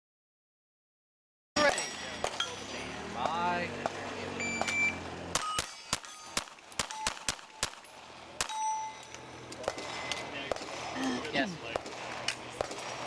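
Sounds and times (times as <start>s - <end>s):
steel target plates ringing: 1.6s - 3.6s, 4.4s - 10.3s
shot timer beep: 4.4s - 5.7s
pistol shots: 4.6s - 8.6s, 9.6s - 11.0s, 11.7s - 13.0s.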